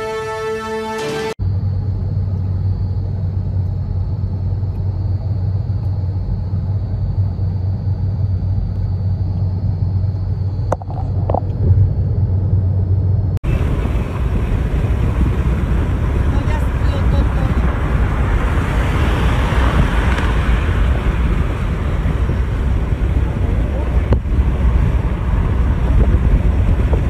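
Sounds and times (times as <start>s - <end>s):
car cabin road and engine noise: 1.4s - 27.0s
rough hissy rumble: 13.5s - 27.0s.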